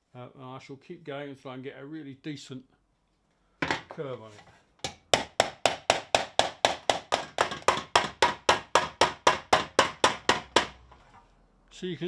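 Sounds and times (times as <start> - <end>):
hammer beating copper: 4.8 - 10.8.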